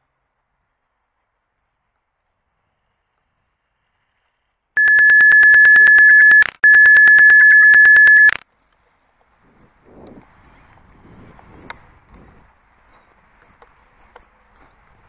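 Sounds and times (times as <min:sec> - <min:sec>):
censor bleep tone: 0:04.8 - 0:08.4.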